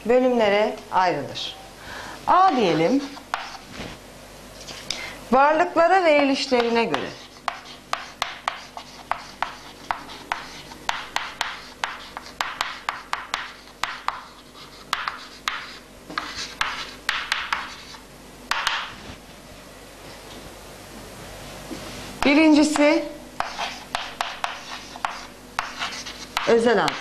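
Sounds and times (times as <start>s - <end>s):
chalk writing on a chalkboard: 2.5s - 3.7s, 6.4s - 18.9s, 22.2s - 27.0s.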